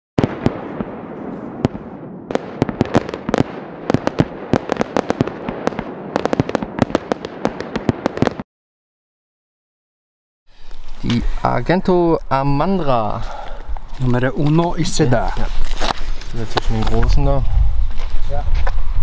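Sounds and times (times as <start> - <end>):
fireworks cracking and popping: 0.2 - 8.5, 13.8 - 17.4.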